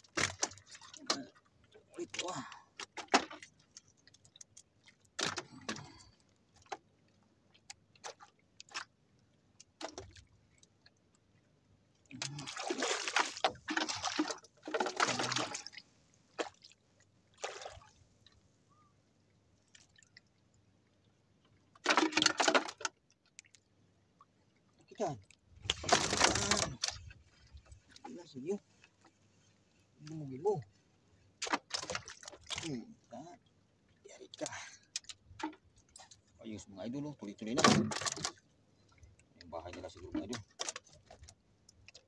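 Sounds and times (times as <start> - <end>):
water splashing against boat: 0.0 - 11.0, 12.0 - 18.9, 19.6 - 23.6, 24.9 - 42.0
clicks and knocks of fishing tackle: 4.4 - 6.8, 9.6 - 10.2, 21.8 - 23.6, 31.4 - 32.7, 34.9 - 36.2, 37.6 - 38.4, 39.7 - 42.0.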